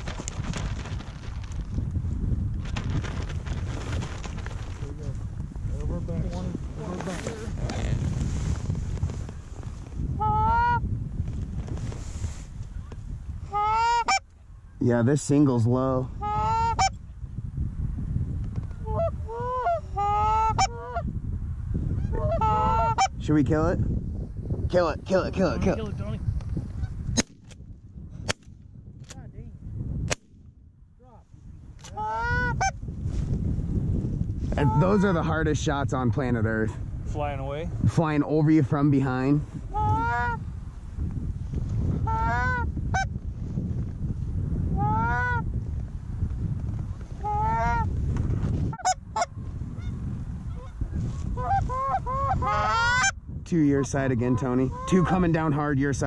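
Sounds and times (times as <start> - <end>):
wind rumble on microphone: 0.0 - 56.0
geese honking: 10.2 - 10.8, 13.5 - 14.2, 16.2 - 16.9, 18.8 - 21.0, 22.0 - 23.1, 32.0 - 32.7, 39.7 - 40.4, 42.0 - 43.1, 44.8 - 45.4, 47.2 - 47.9, 48.7 - 49.9, 51.4 - 53.1, 54.7 - 55.2.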